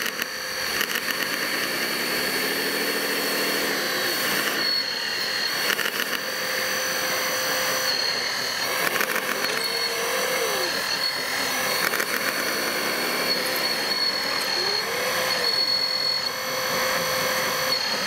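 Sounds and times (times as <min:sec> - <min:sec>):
electric motors whining: 0:00.0 - 0:18.0.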